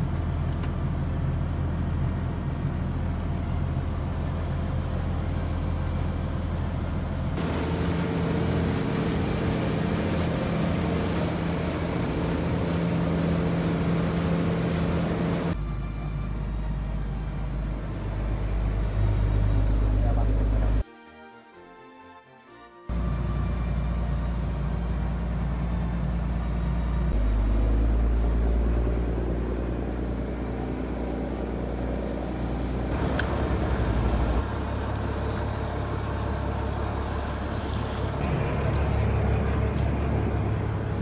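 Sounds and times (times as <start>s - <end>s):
boat engine rumbling: 0.0s - 20.8s, 22.9s - 41.0s
sea noise: 7.3s - 20.8s, 22.9s - 41.0s.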